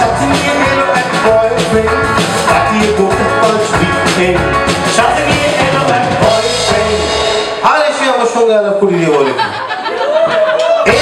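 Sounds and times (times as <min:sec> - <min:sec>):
man singing: 0:00.0 - 0:08.3
rock band playing: 0:00.0 - 0:08.4, 0:10.7 - 0:11.0.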